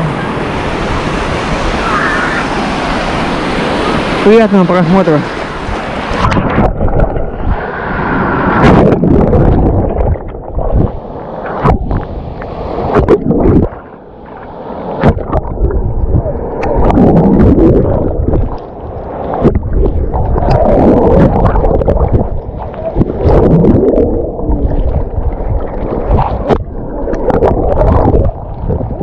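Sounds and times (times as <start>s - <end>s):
storm waves breaking: 0.0s - 29.0s
water splashing: 0.0s - 29.0s
wind buffeting: 5.2s - 13.8s, 15.0s - 29.0s.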